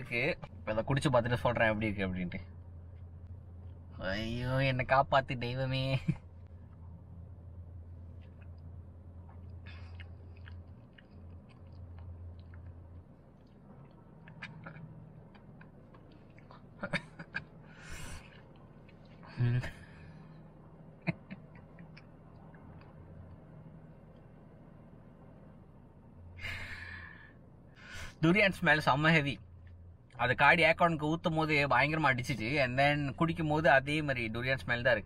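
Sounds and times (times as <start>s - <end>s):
low hum: 0.0s - 35.0s
lip smacks and tongue clicks: 9.3s - 16.7s, 21.3s - 23.4s
breathy exhale: 26.4s - 28.2s.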